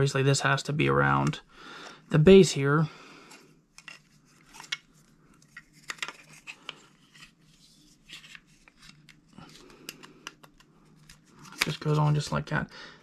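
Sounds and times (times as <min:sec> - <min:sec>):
plastic parts clicking and tapping: 0:08.8 - 0:11.8.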